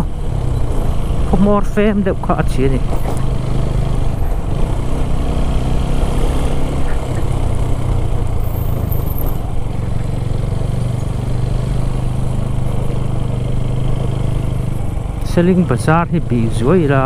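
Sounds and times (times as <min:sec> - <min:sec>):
motorcycle engine running slowly: 0:06.8 - 0:17.0.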